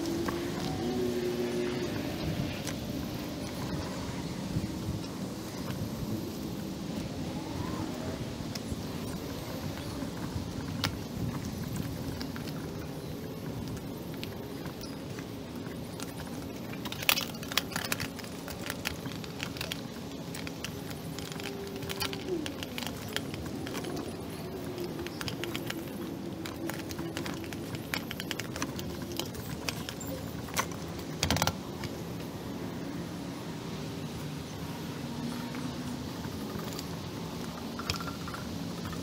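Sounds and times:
nylon gear rustling: 0:00.0 - 0:39.0
buckles clicking: 0:08.6 - 0:32.2.

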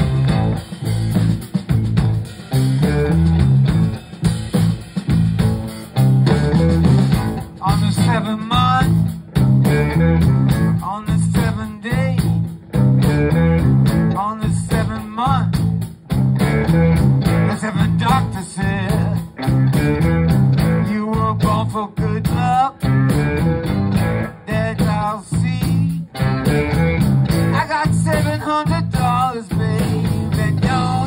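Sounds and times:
electric blues band playing: 0:00.0 - 0:31.0
lead guitar bending notes: 0:00.0 - 0:31.0.

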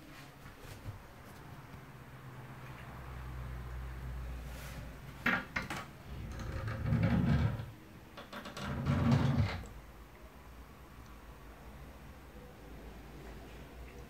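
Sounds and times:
wooden door rubbing and knocking: 0:05.2 - 0:09.7.

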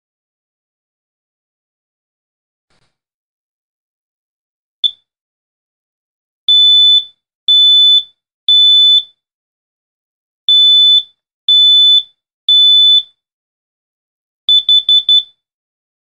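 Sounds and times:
smoke alarm beeping: 0:06.5 - 0:09.1, 0:10.5 - 0:13.1, 0:14.5 - 0:15.4.

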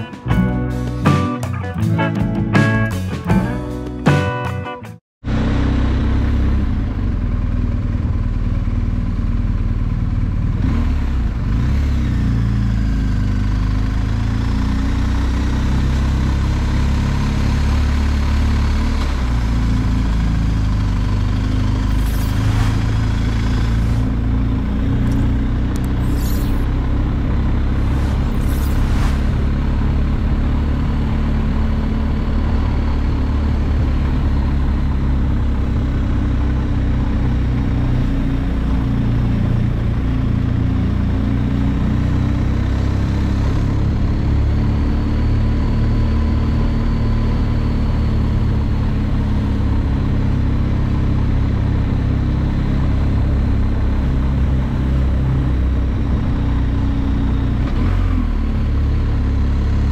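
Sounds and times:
motorcycle engine running: 0:05.2 - 0:59.9
brief hissing rushes: 0:21.9 - 0:24.4, 0:27.8 - 0:29.6.

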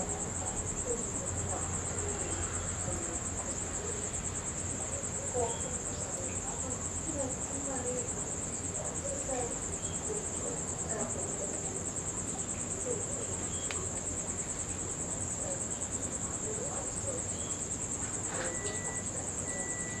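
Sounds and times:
crickets trilling: 0:00.0 - 0:20.0
faint click: 0:13.6 - 0:13.8.

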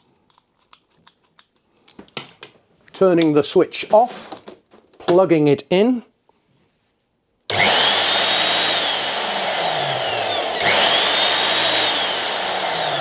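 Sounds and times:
hammer drill whining: 0:07.5 - 0:13.0.

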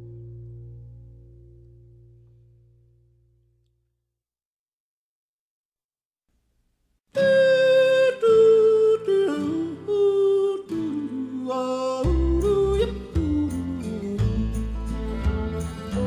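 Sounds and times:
country music: 0:07.2 - 0:16.0.

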